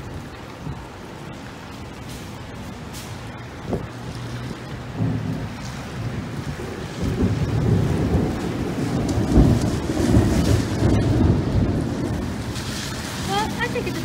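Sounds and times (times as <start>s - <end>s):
rolling thunder: 3.6s - 13.8s.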